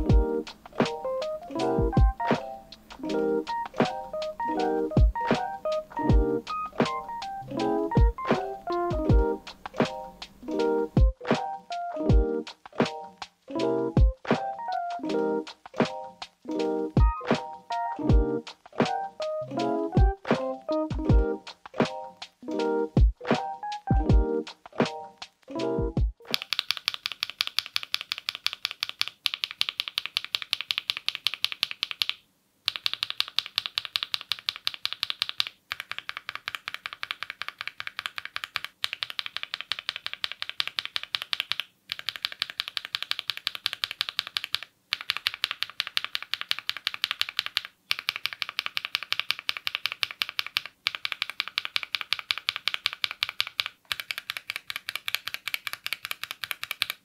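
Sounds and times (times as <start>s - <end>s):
keyboard switches clicking: 26.3s - 57.0s.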